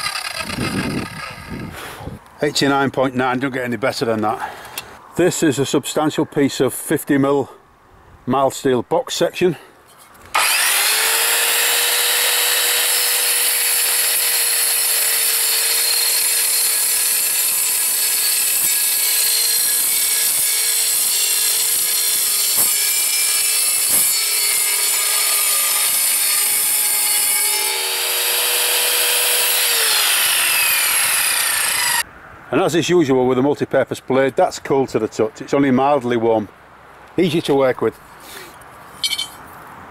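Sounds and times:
saw motor whine: 0.0 - 1.7, 10.3 - 32.0
metal-cutting screech: 10.3 - 32.0.

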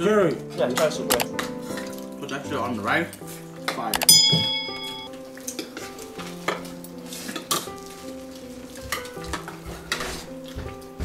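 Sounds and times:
background music: 0.0 - 11.0
utensils clinking on dishes: 3.2 - 10.7.

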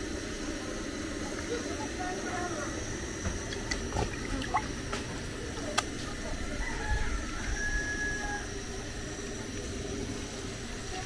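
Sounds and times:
distant rooster crowing: 6.4 - 8.8.

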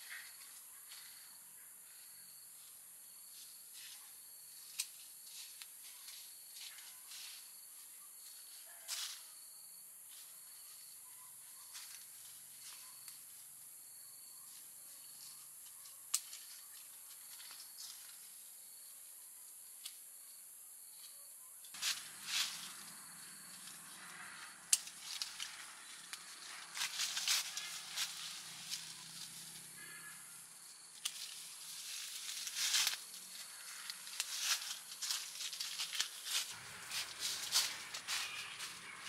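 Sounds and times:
insect chirps: 0.0 - 39.0
insect drone: 0.0 - 39.0
leaves and plastic bags rustling: 21.7 - 29.8, 30.5 - 39.0.

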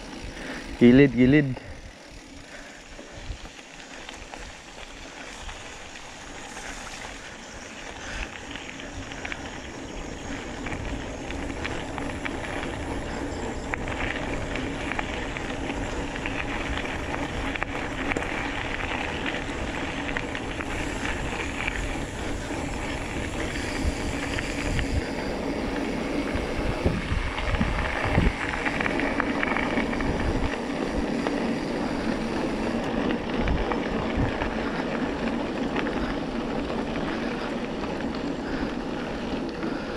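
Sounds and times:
bike rattle: 0.0 - 39.9
bike tyres rolling on gravel: 0.0 - 39.9
wind on microphone: 20.6 - 31.2.

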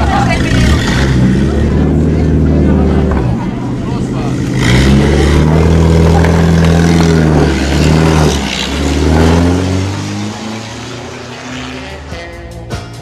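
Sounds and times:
car engine revving: 0.0 - 13.0
music: 11.8 - 13.0.

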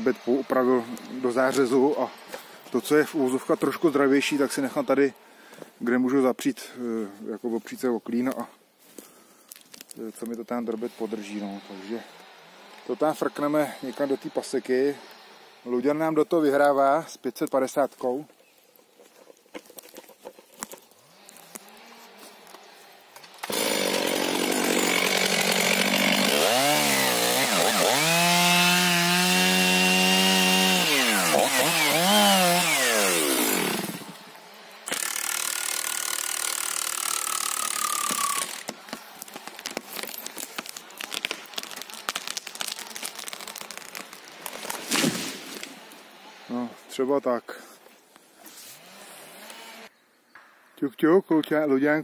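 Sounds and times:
wood cracking: 9.0 - 11.0, 17.4 - 34.0, 34.9 - 46.0
chainsaw cutting wood: 19.9 - 22.6, 23.2 - 46.2, 48.6 - 49.9.

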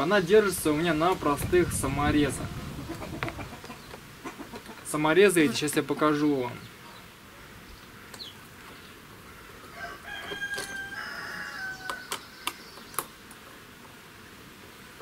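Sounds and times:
rooster crowing: 9.6 - 12.4
sharp clicks: 11.8 - 13.4.

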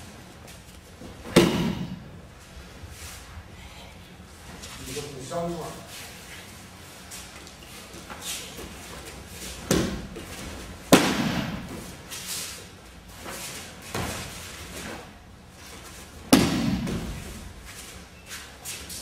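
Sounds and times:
bodies slapping mats: 0.5 - 2.2, 7.2 - 12.3, 13.1 - 18.0.

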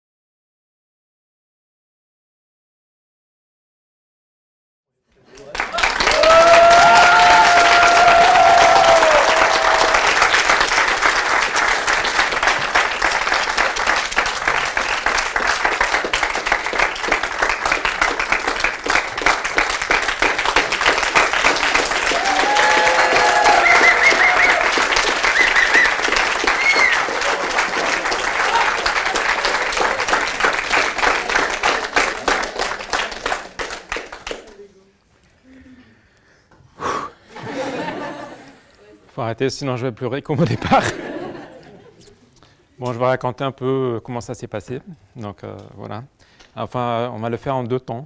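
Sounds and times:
audience applauding: 5.2 - 34.6.

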